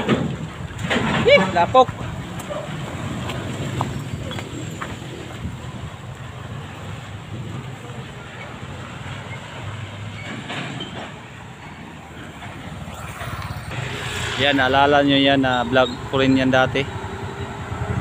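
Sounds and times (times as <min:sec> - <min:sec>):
diesel truck engine droning: 0:11.2 - 0:18.0.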